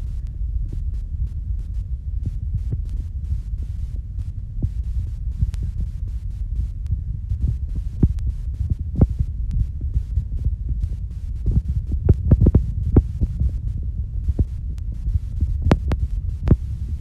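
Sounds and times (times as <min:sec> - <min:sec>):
phone microphone handling rumble: 0:00.0 - 0:17.0
thumps and clicks: 0:14.3 - 0:17.0.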